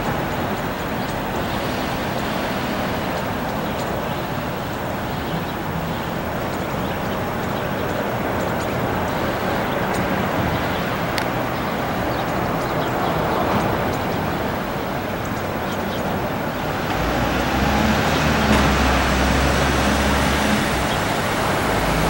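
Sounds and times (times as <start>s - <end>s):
jet engines rushing: 0.0s - 22.0s
wind buffeting microphone: 0.0s - 22.0s.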